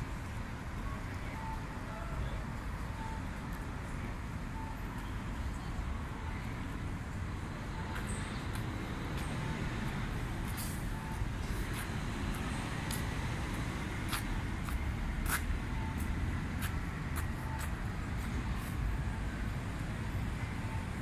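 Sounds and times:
city traffic rumble: 0.0s - 21.0s
footsteps on paving: 11.6s - 18.3s.

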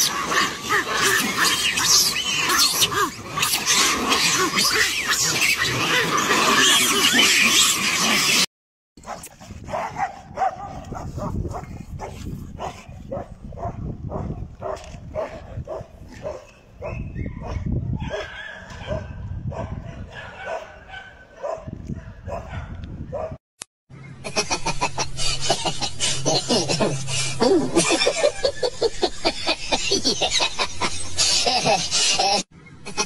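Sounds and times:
dog barking: 9.0s - 23.4s.

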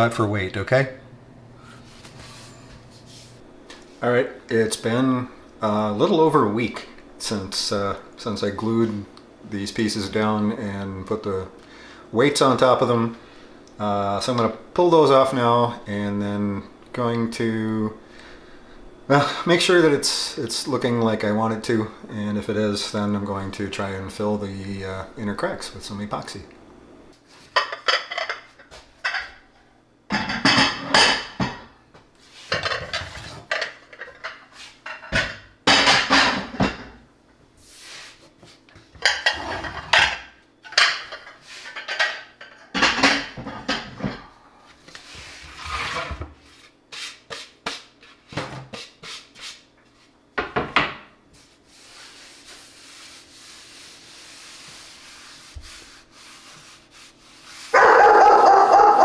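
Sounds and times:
hands rubbing on countertop: 1.6s - 4.0s, 32.2s - 32.6s, 34.4s - 34.8s, 37.6s - 38.9s, 44.7s - 50.2s, 51.3s - 57.8s
plates clattering and clinking: 27.5s - 29.5s, 30.1s - 31.7s, 32.5s - 37.0s, 39.0s - 44.3s.

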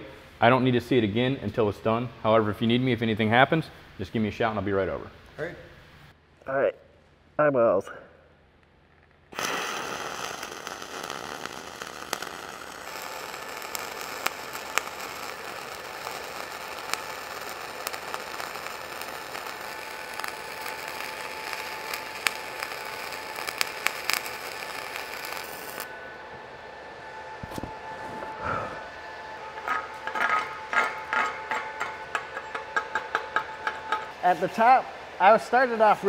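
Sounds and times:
welding arc crackling: 9.3s - 26.4s.

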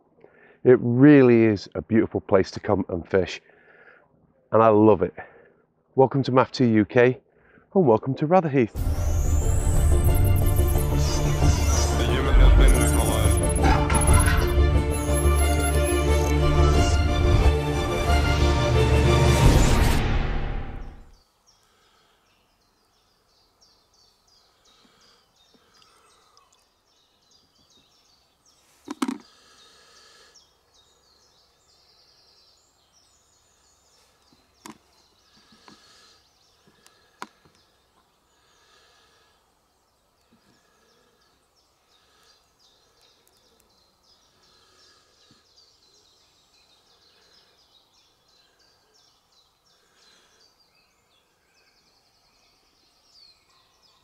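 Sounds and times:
small birds chirping: 6.7s - 16.4s, 21.1s - 54.0s
fishing tackle knocking and clicking: 28.9s - 29.3s.

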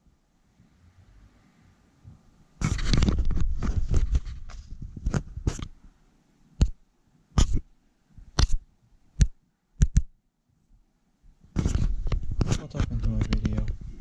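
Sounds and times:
paper pages crackling: 2.6s - 5.7s.

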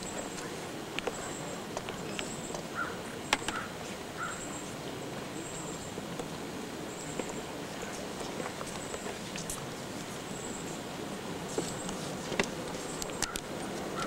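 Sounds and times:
insects calling in high bursts: 0.0s - 11.2s
sharp clicks: 12.4s - 13.5s.

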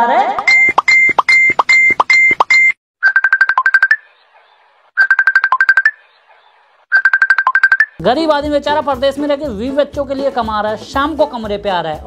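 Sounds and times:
repeating beep: 0.4s - 4.1s, 5.0s - 6.0s, 6.9s - 8.0s
electronic ringtone melody: 0.5s - 4.1s, 5.0s - 6.0s, 6.9s - 8.0s.

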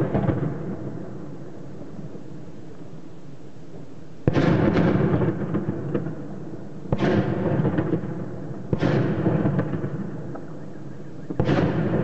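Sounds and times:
heavy explosions with echo: 11.4s - 12.0s.

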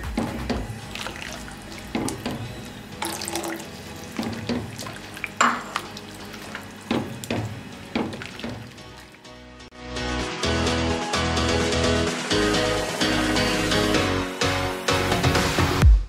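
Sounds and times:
liquid swishing and sloshing: 0.8s - 9.3s
spatula knocking against pan: 6.8s - 8.8s.

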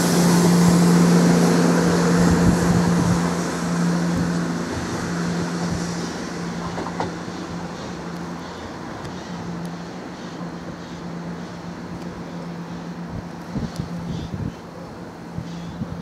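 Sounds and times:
train wheels rushing: 0.0s - 11.9s
diesel train engine hum: 0.0s - 16.0s.

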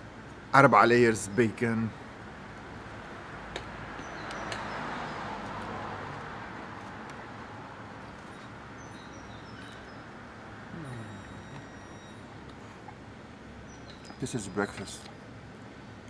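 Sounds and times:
traffic passing: 0.0s - 16.0s
bird chirps: 4.0s - 5.2s, 8.2s - 12.8s, 13.6s - 15.1s.

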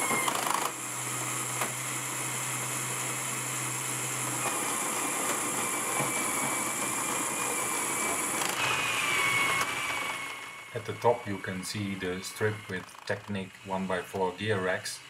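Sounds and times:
toy motor whirring through gears: 0.0s - 1.3s, 4.4s - 15.0s
thin high whine: 0.0s - 15.0s.

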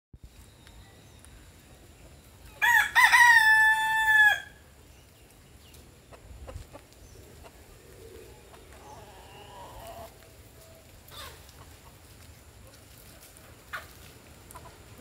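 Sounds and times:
rooster crowing: 2.6s - 4.6s.

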